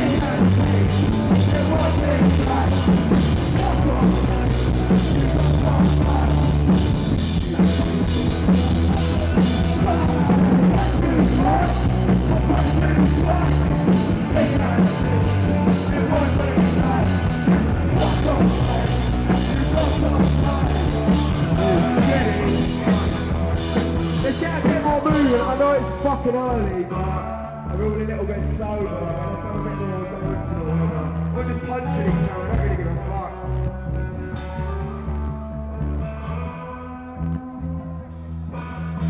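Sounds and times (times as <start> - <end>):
pounding drum kit: 0.0 - 26.1
electric guitars: 0.0 - 39.0.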